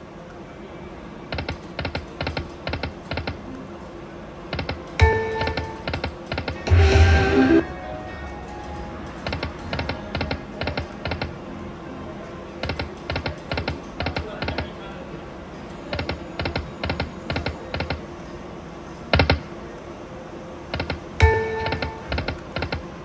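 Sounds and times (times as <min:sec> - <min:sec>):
slot machine reel clicks: 0:04.6 - 0:07.6, 0:20.8 - 0:22.8.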